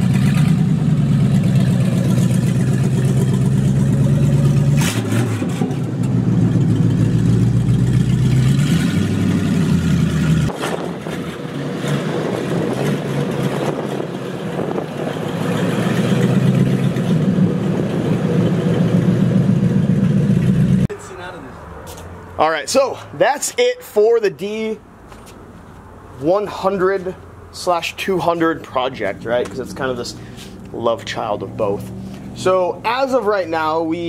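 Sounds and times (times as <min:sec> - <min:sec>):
pickup truck engine running: 0:00.0 - 0:20.9.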